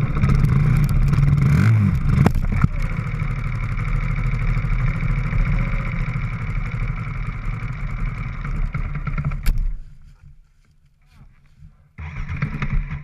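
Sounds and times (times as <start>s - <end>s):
dirt bike engine idling: 0.0s - 10.3s.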